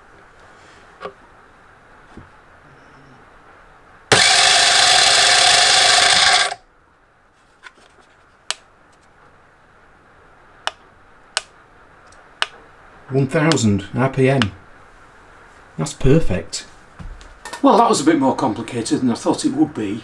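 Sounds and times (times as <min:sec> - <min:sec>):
starter motor spinning flywheel: 0:04.1 - 0:06.6.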